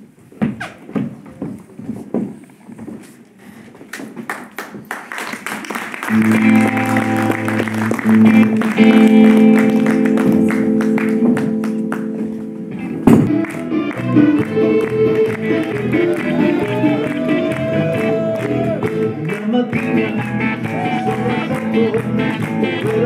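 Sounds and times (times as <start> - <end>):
audience clapping: 3.9 - 12.5, 13.2 - 23.0
live electric guitar music: 6.0 - 23.0.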